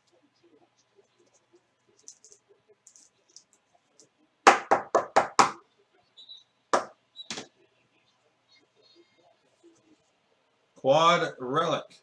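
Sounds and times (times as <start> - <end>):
cards being handled: 1.2 - 3.6.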